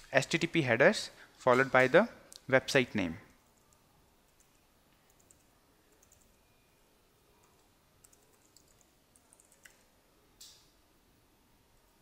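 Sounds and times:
faint keyboard typing: 3.4 - 6.5, 7.4 - 10.6.

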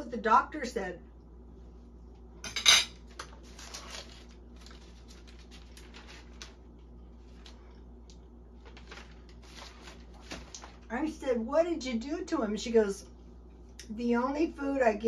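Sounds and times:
paper rustling: 3.1 - 7.8, 8.6 - 10.9.

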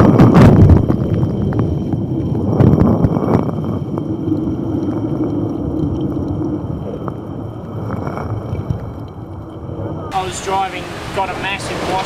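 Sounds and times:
low steady hum: 0.0 - 12.0
water and wind rushing: 0.0 - 12.0
wave breaking over bow: 10.1 - 12.0.

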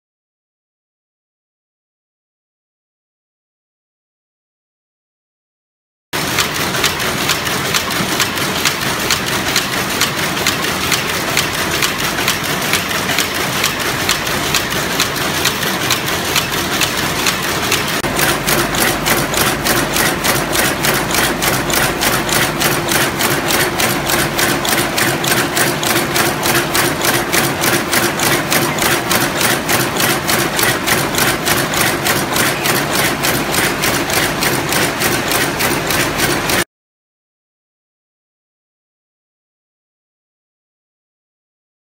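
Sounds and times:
power looms clattering: 6.2 - 36.6
steady hum: 16.7 - 27.4.

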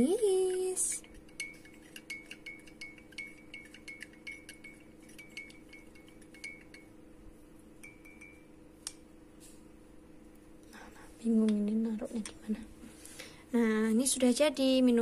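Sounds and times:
spoon clinking against glass mug: 0.5 - 7.0, 7.8 - 8.5
spoon tapping glass: 0.5 - 7.0, 7.8 - 8.6.

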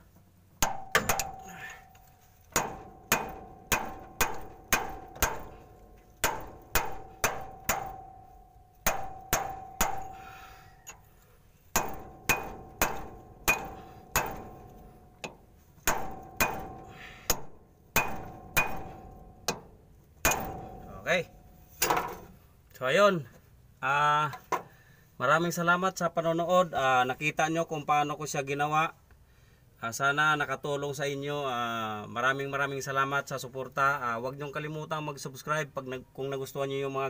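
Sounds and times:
hammer tapping steel punch: 0.6 - 11.1, 11.7 - 21.1.

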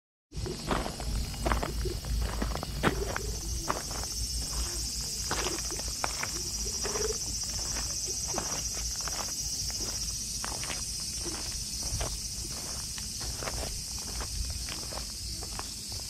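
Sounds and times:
insects droning: 0.3 - 16.0
footsteps on gravel: 0.4 - 16.0.

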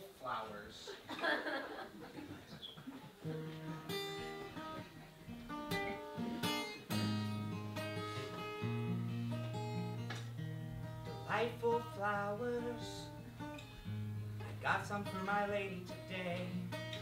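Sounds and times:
acoustic guitar strumming: 3.2 - 17.0.

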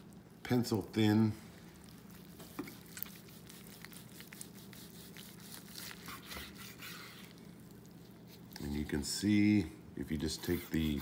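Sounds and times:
low steady hum: 0.0 - 11.0
knife sawing through meat: 2.5 - 7.4, 10.2 - 11.0.

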